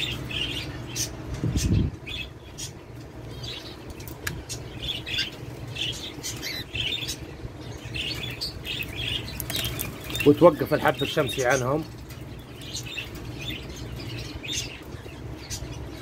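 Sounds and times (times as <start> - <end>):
cockatiels chirping: 4.5 - 16.0
wings flapping: 9.2 - 10.3.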